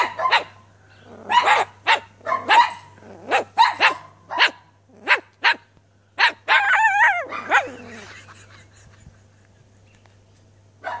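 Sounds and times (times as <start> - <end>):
cockatoo imitating dog barks: 1.2 - 5.6, 6.2 - 8.0.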